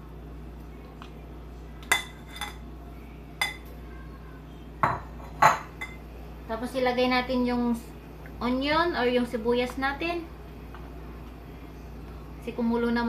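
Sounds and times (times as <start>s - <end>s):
steady low hum: 0.0s - 13.0s
metal spatula clinking on dishes: 1.8s - 2.6s.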